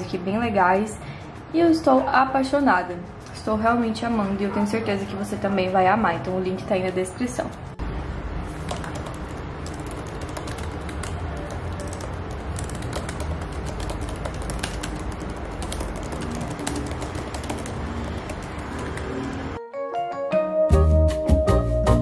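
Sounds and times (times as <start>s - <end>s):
fast typing on laptop keyboard: 8.5s - 19.6s.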